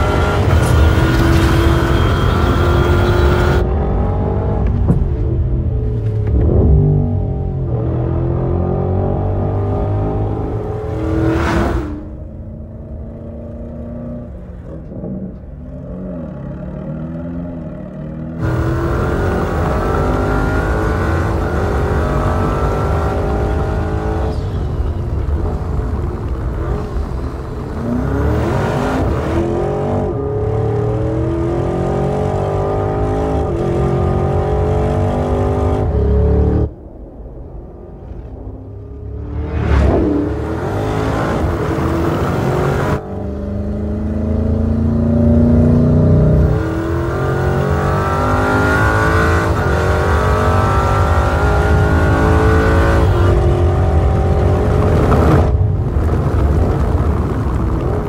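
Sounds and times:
car engine accelerating hard: 0.0s - 4.8s, 18.3s - 36.8s, 39.0s - 58.0s
short whoosh: 36.9s - 40.8s.

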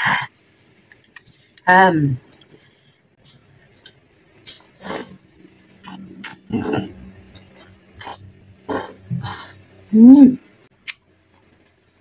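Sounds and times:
wet chewing: 3.7s - 9.6s
slurping noodles: 4.5s - 5.2s, 5.8s - 9.6s.

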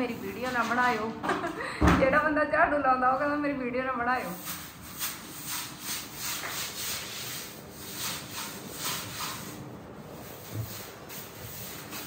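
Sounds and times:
broom sweeping: 0.0s - 1.1s, 4.2s - 12.0s.

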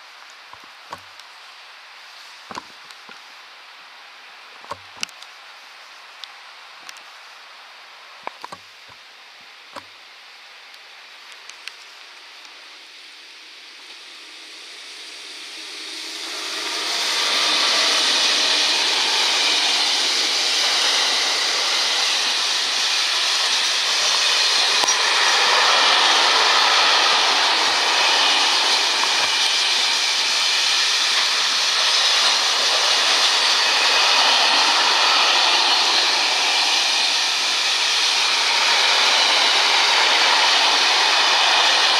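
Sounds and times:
freight train rolling over rails: 14.1s - 41.9s.

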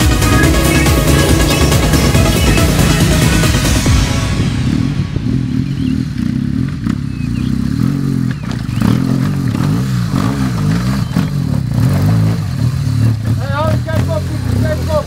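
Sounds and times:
motorcycle engine revving: 0.0s - 15.0s
stones clattering under tyres: 8.2s - 12.5s.

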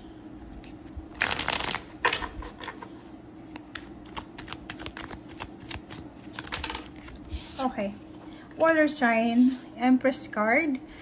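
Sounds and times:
cards fluttering: 1.1s - 2.4s, 3.6s - 7.2s
cards clicking and tapping: 3.5s - 7.1s.

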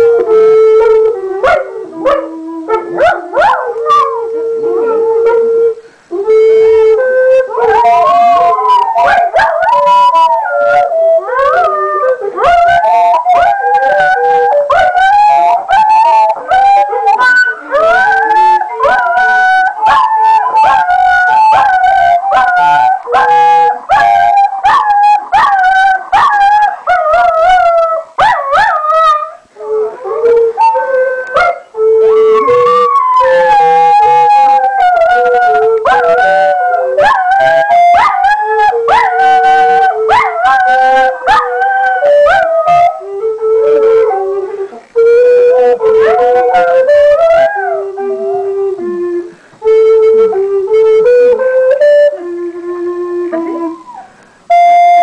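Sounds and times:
recorder playing a tune: 0.0s - 55.0s
dogs howling: 7.6s - 43.0s, 45.6s - 48.6s.

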